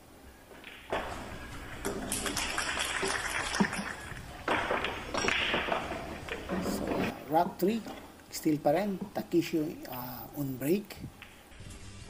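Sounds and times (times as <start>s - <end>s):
audience applauding: 1.3s - 5.8s.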